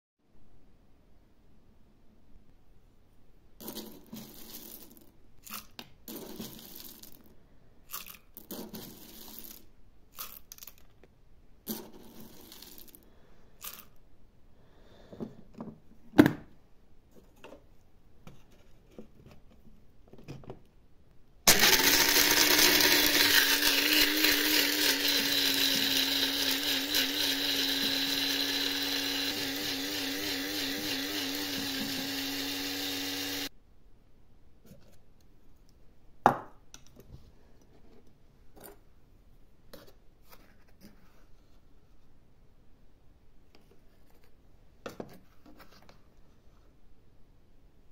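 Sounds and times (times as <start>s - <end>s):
coffee beans rattling: 3.6s - 7.3s, 7.9s - 10.8s, 11.7s - 13.0s, 13.6s - 14.0s, 21.5s - 33.5s
coffee grinder motor grinding: 21.5s - 33.5s.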